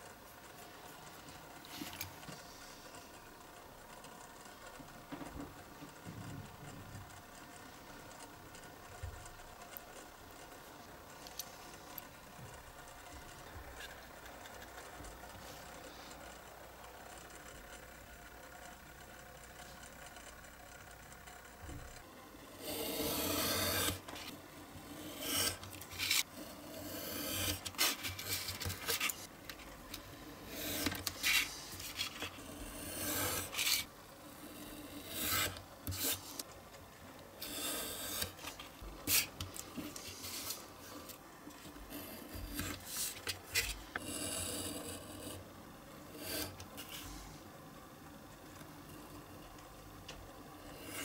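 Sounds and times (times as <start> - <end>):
utility knife scraping through card: 22.6 - 24.0, 25.1 - 26.2, 34.9 - 36.4.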